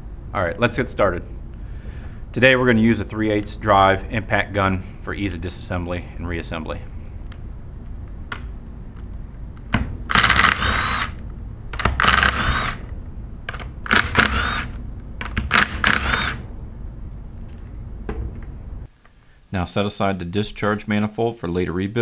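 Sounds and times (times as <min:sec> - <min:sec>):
impact gun bursts: 0:10.0 - 0:11.2, 0:11.8 - 0:12.9, 0:13.8 - 0:16.4.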